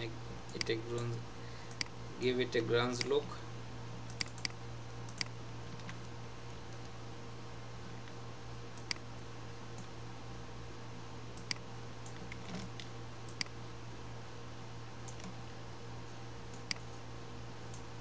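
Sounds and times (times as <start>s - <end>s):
low electrical hum: 0.0s - 18.0s
computer mouse clicking: 1.7s - 1.9s, 4.1s - 6.1s, 8.8s - 9.0s, 11.4s - 13.5s, 15.0s - 15.4s, 16.5s - 17.0s.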